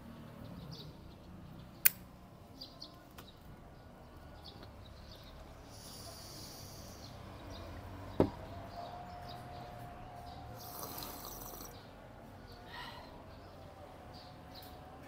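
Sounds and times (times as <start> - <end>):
knock on table: 8.2 - 8.4
person slurping tea: 10.6 - 11.8.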